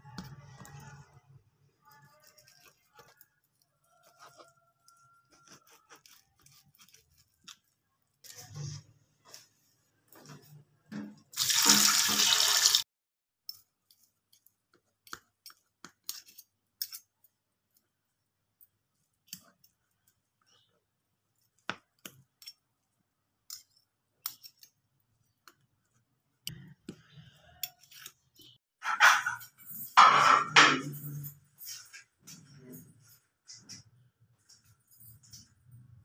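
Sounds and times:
spoon and fork on cutting board: 0:01.9 - 0:08.8.

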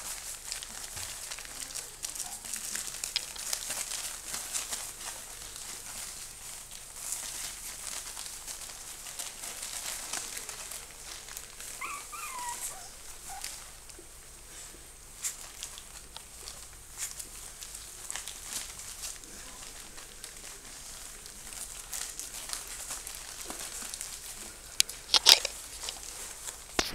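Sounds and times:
puppies scratching on crinkly pad: 0:00.0 - 0:26.9
puppy whining: 0:11.1 - 0:14.0.

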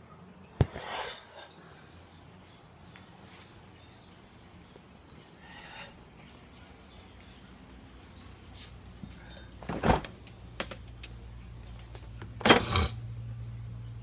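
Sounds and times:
low hum: 0:03.8 - 0:14.0
clatter of items in fridge: 0:09.3 - 0:10.8, 0:12.4 - 0:13.0
refrigerator door opening: 0:09.6 - 0:10.8, 0:12.3 - 0:12.9.

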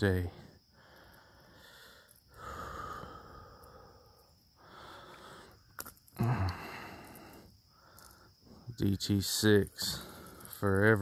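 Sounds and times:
person breathing heavily: 0:00.3 - 0:08.7, 0:09.7 - 0:10.6
low grunt: 0:06.2 - 0:07.0.

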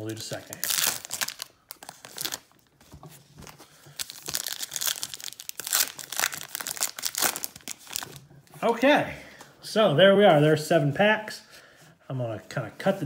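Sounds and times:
foil wrappers crinkling and tearing: 0:00.0 - 0:02.6, 0:03.8 - 0:08.2.

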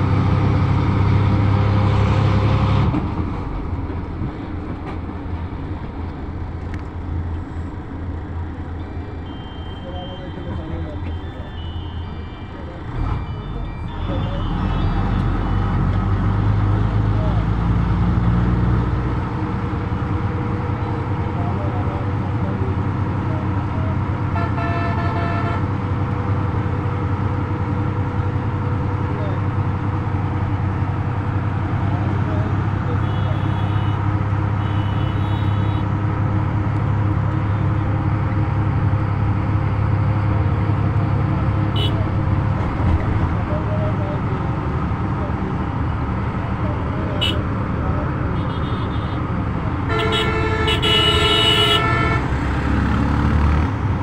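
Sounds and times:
heavy vehicle engine humming: 0:00.0 - 0:54.0
tyre and road noise: 0:00.0 - 0:54.0
vehicle horn: 0:09.2 - 0:12.5, 0:24.3 - 0:25.7, 0:33.0 - 0:35.9, 0:41.7 - 0:42.1, 0:47.2 - 0:47.4, 0:48.4 - 0:49.2, 0:49.9 - 0:52.6.

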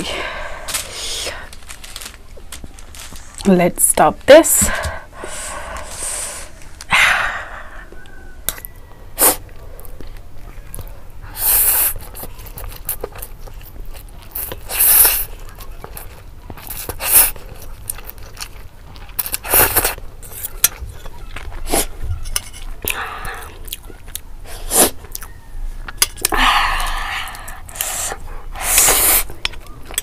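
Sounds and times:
chewing and mouth clicks: 0:07.9 - 0:30.0
slurping noodles: 0:11.3 - 0:13.3, 0:14.3 - 0:18.5, 0:24.5 - 0:25.2, 0:26.8 - 0:29.4.

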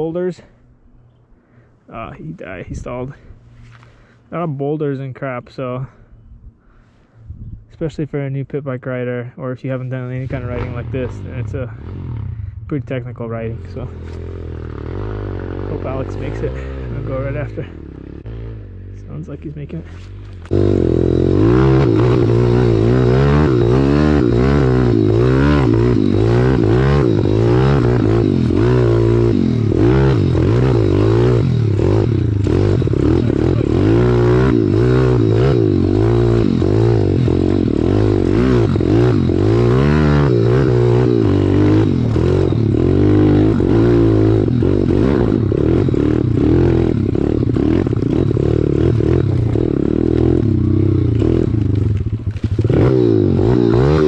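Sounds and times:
motorcycle engine revving: 0:10.1 - 0:54.0
bike rattling and knocking: 0:20.4 - 0:54.0.

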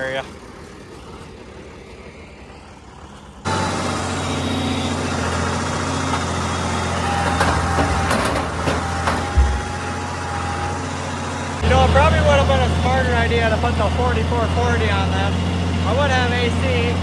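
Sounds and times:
reel turning through soil: 0:00.0 - 0:03.6
tractor engine running: 0:00.0 - 0:17.0.

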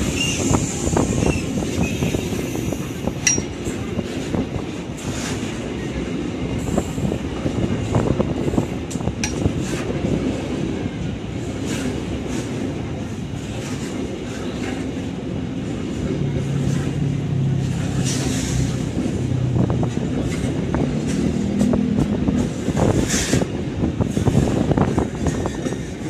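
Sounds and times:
wheels clicking over rail joints: 0:00.0 - 0:06.8, 0:07.8 - 0:10.4, 0:11.3 - 0:26.0
freight train wheels rumbling: 0:00.0 - 0:26.0.

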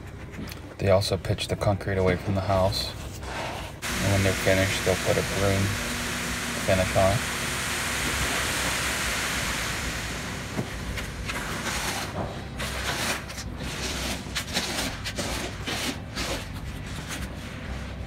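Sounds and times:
truck engine rumbling: 0:03.8 - 0:12.6
wet concrete rushing down chute: 0:03.8 - 0:15.3
rake scraping concrete: 0:03.8 - 0:17.2.

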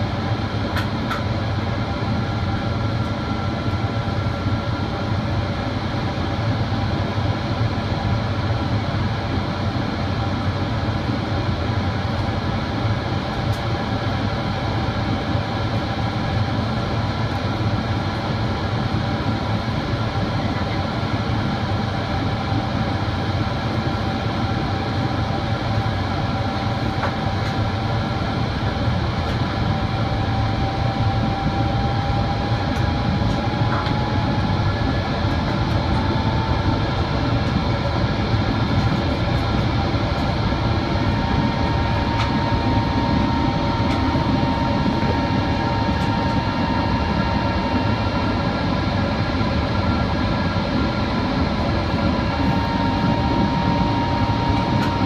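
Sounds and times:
jet engines droning: 0:00.0 - 0:55.0
thin rising whine: 0:29.5 - 0:55.0.

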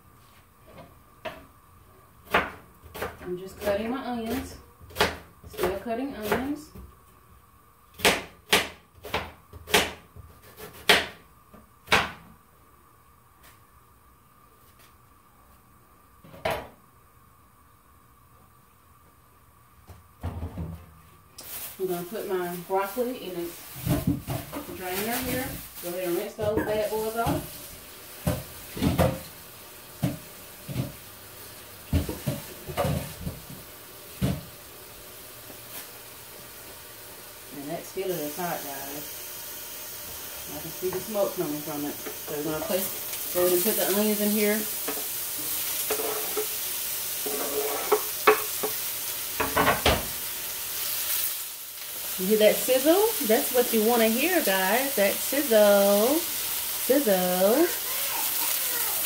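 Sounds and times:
faint steady hiss: 0:00.0 - 0:59.0
knife chopping on cutting board: 0:08.0 - 0:11.2
kitchenware knocking and clunking: 0:49.4 - 0:50.1.

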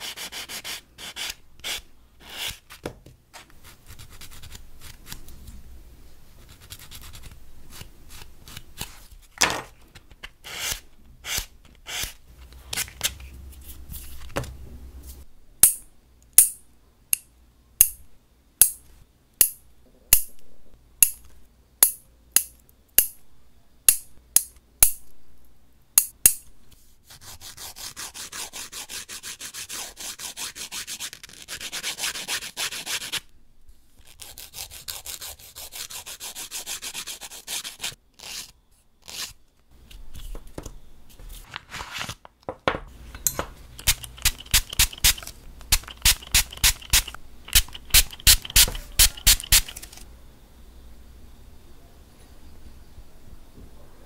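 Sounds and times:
nail clipper clicking: 0:43.8 - 0:50.0
nail file rasping: 0:43.8 - 0:50.0.

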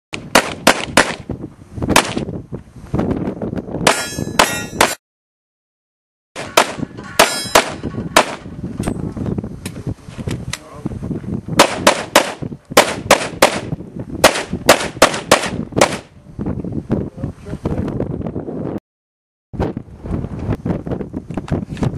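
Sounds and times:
pistol firing rapid shots: 0:00.2 - 0:01.2, 0:11.6 - 0:16.1.

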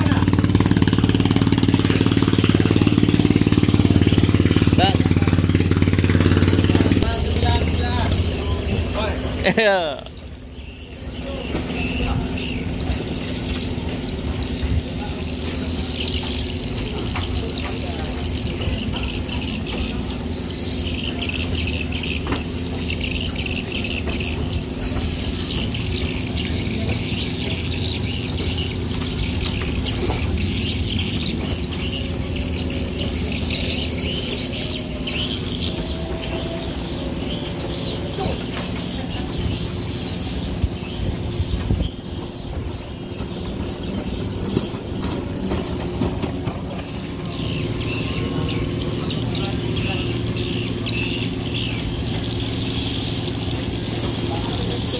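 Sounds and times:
birds chirping: 0:00.0 - 0:54.9
low engine hum: 0:00.0 - 0:54.9.

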